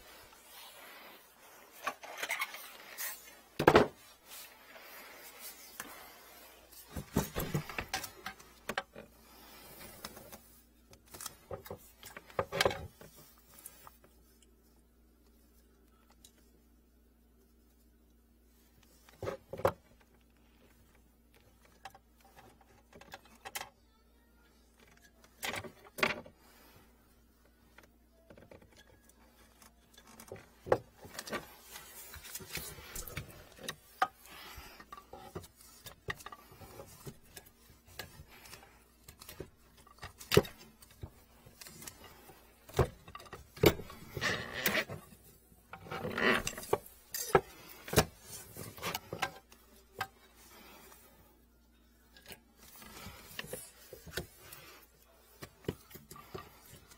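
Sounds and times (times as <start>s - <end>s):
plastic drain hose being handled: 0.0s - 14.4s, 27.3s - 51.1s, 52.1s - 56.9s.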